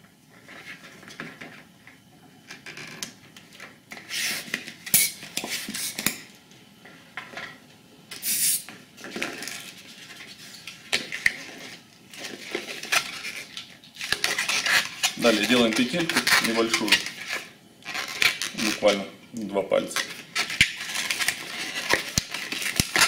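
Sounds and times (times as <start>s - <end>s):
balloon pump hissing air: 4.0s - 6.1s, 8.1s - 8.7s
latex balloon squeaking: 14.2s - 18.9s.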